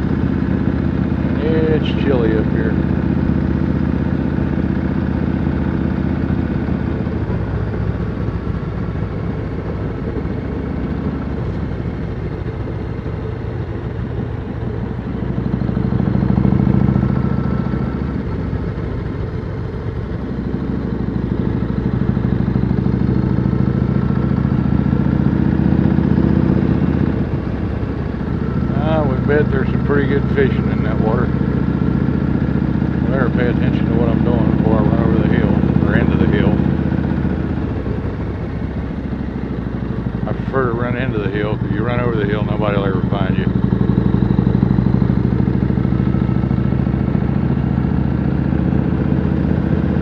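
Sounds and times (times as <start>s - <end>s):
motorcycle engine running: 0.0s - 50.0s.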